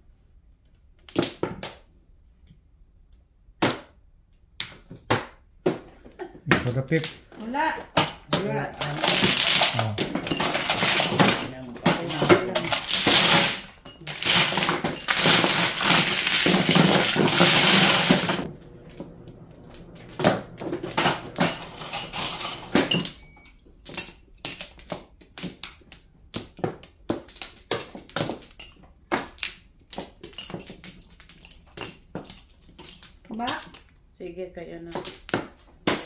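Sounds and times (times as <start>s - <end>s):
mahjong tiles clattering: 7.8s - 18.5s
tiles and plastic chips clicking: 8.2s - 18.5s.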